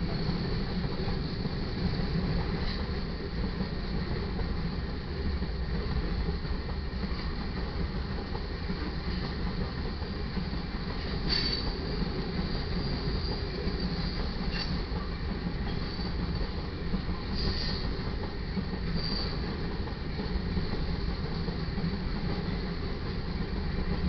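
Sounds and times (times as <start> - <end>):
steel wheels rumbling on rail: 0.0 - 24.0.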